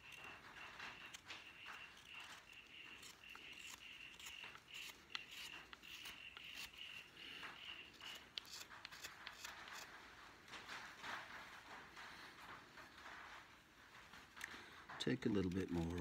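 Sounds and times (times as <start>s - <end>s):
knife carving wood: 0.0s - 10.2s, 14.4s - 16.0s.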